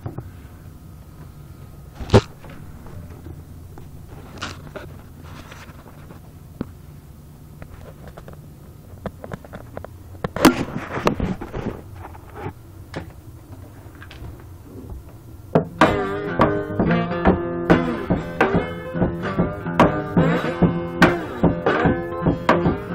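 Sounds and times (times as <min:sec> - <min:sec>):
steady low hum: 0:00.0 - 0:22.9
guitar chord ringing: 0:15.6 - 0:22.9.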